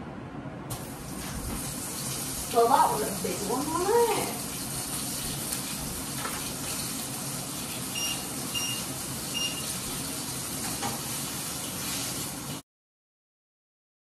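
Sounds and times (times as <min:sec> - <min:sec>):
food sizzling in oil: 0:00.7 - 0:12.6
short electronic beeps: 0:08.0 - 0:08.8, 0:09.4 - 0:09.6.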